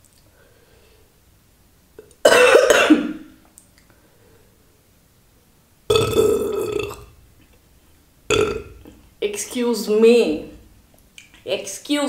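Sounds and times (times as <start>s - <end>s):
woman burping loudly: 5.9s - 7.2s, 8.3s - 9.0s.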